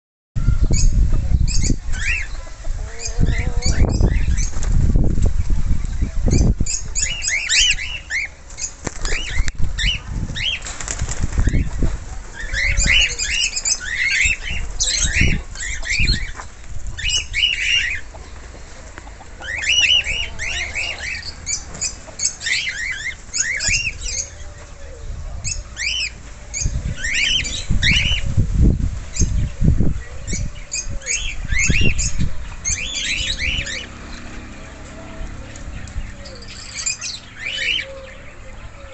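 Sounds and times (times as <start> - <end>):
cockatiels chirping: 0.7 - 4.5, 12.4 - 18.2, 19.4 - 24.4, 35.5 - 38.9.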